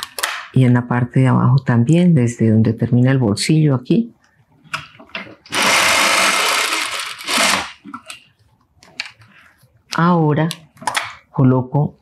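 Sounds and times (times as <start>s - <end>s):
sewing machine running: 5.5s - 7.8s.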